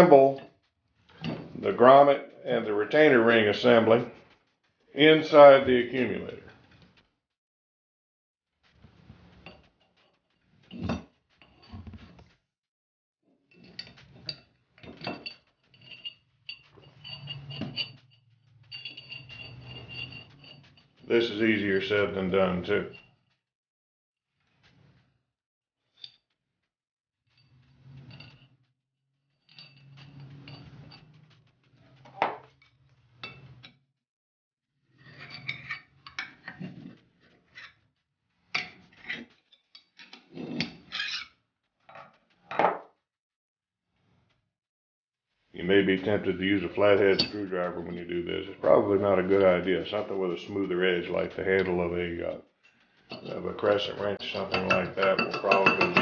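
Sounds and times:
light metallic clinks: 13.5s - 20.8s, 53.1s - 56.0s
metal parts scraping and clinking: 13.5s - 23.4s, 29.3s - 33.7s, 35.0s - 37.8s, 38.5s - 41.3s, 52.6s - 56.0s.

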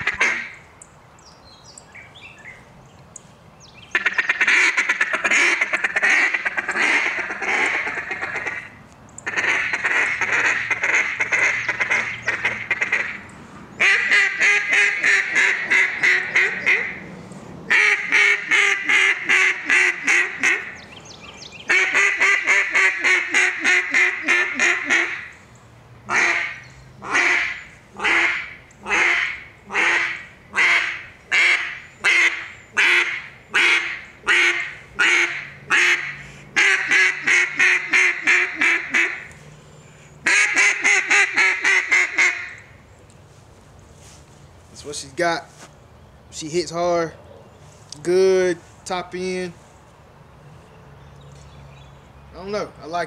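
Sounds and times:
duck call quacking: 0.0s - 0.6s, 3.9s - 8.7s, 9.3s - 13.2s, 13.8s - 17.0s, 17.7s - 20.8s, 21.7s - 25.3s, 26.1s - 39.3s, 40.2s - 42.6s
breaths: 13.3s - 13.7s, 36.2s - 36.6s, 39.4s - 40.2s.

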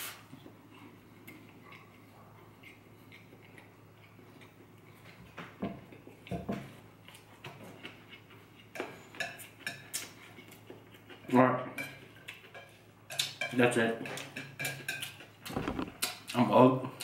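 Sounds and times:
faint chewing: 0.3s - 11.3s
soft thuds: 15.5s - 16.0s.

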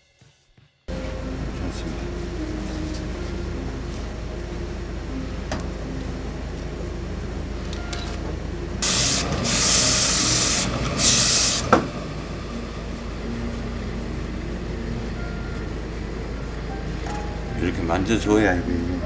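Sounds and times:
steam iron hissing: 8.8s - 13.1s.

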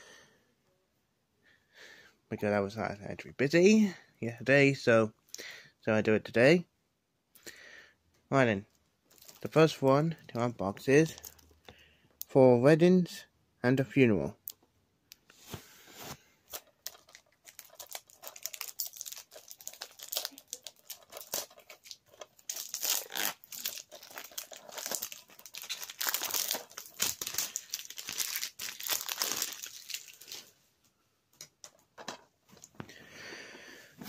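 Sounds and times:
plastic wrapping tearing and crumpling: 9.1s - 9.7s, 16.5s - 30.5s.

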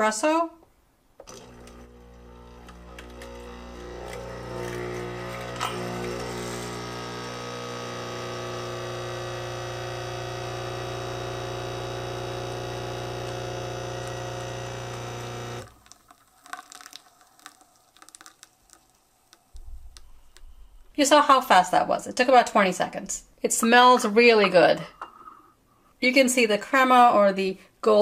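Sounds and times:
coffee machine pump humming: 1.2s - 18.2s.

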